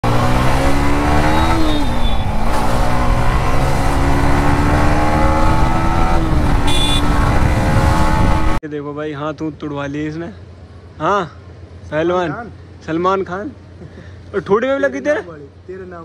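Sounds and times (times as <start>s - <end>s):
motorcycle engine revving: 0.0s - 8.6s.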